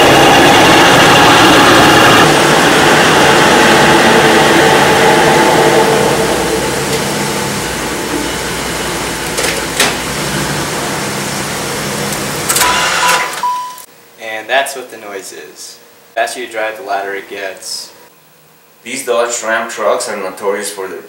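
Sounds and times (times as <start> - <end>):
rear differential growling: 0.0 - 13.1.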